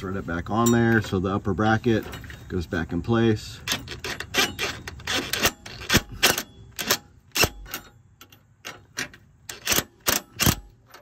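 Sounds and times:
metallic clicks of hand tools: 3.6 - 11.0.

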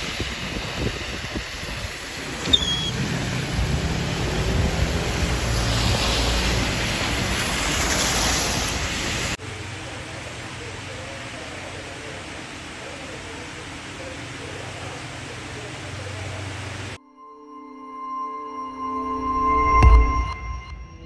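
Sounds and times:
wind noise: 0.0 - 9.3
rain: 0.0 - 17.0
tyres on wet road: 0.0 - 17.0.

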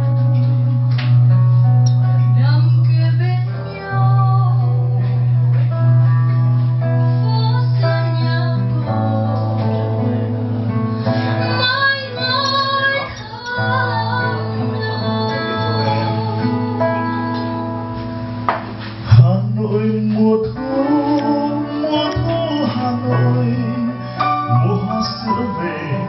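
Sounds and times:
fingered acoustic guitar: 0.0 - 26.0
woman singing a slow ballad: 2.0 - 6.1, 6.7 - 18.1.

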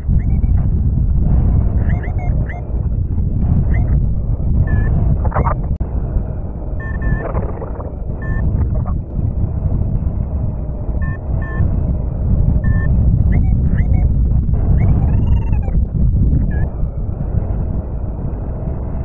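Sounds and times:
variometer beeping short high tones: 0.0 - 0.7, 1.8 - 2.6, 3.6 - 4.0, 4.6 - 5.6, 6.8 - 8.9, 11.0 - 11.6, 12.6 - 14.1, 14.8 - 15.8, 16.4 - 16.7
wind buffeting microphone: 0.0 - 19.0.

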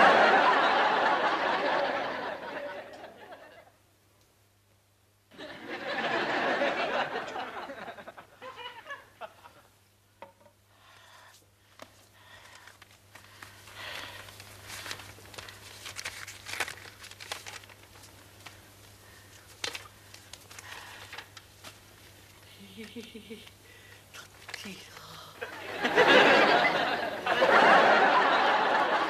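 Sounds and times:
audience laughter: 0.0 - 3.7, 5.3 - 9.6, 25.4 - 29.0
paper rustling and crinkling: 11.7 - 23.0, 24.2 - 25.0.

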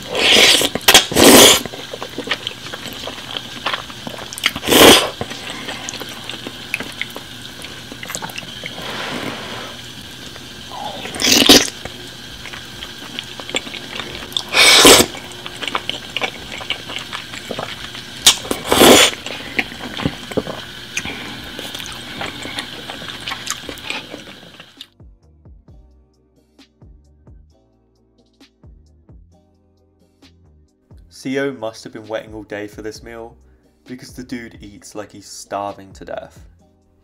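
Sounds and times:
slurping noodles: 0.0 - 24.9
wet chewing: 0.0 - 24.9.

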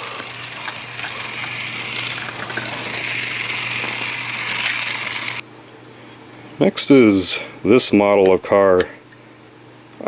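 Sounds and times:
toy car motor whirring: 0.0 - 5.4.

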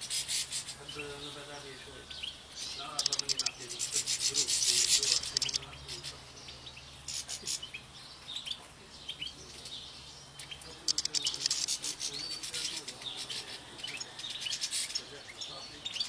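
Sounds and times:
birds twittering: 0.0 - 16.0
dry crackling of thistle heads: 2.6 - 6.3, 10.4 - 16.0.

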